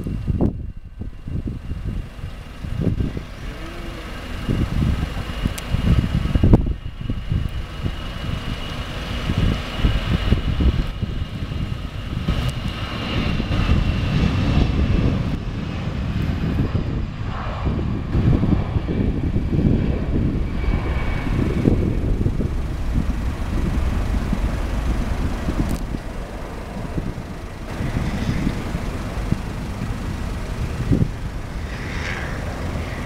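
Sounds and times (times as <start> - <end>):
thin high whine: 0.0 - 9.5, 20.4 - 33.0
jet engines rumbling: 0.0 - 33.0.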